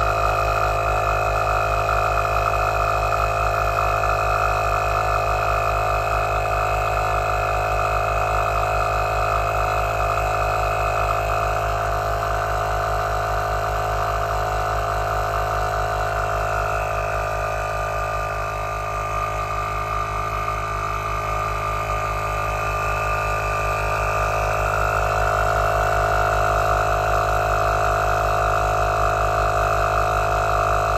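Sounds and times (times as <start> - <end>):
air compressor running: 0.0 - 30.9.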